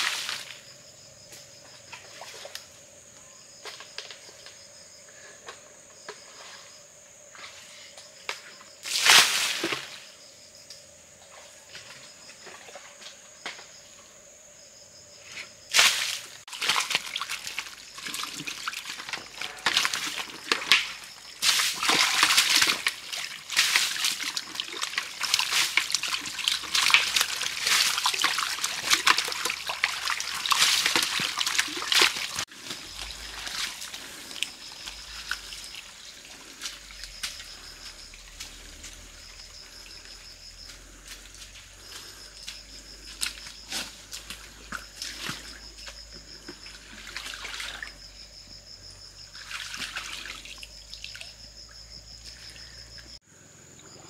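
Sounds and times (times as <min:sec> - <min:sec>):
water splashing and sloshing: 0:01.6 - 0:02.8, 0:08.8 - 0:10.2, 0:11.1 - 0:13.8, 0:15.6 - 0:53.2.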